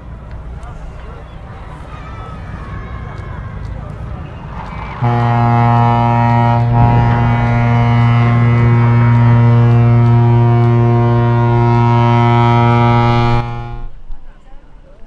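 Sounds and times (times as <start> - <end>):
water splashing: 5.0 - 12.0
deep ship's horn blast: 5.0 - 14.0.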